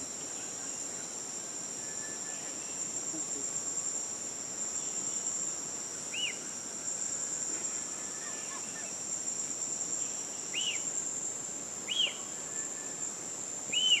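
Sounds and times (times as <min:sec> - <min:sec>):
insect chorus: 0:00.0 - 0:14.0
bird chirps: 0:11.9 - 0:13.0, 0:13.7 - 0:14.0.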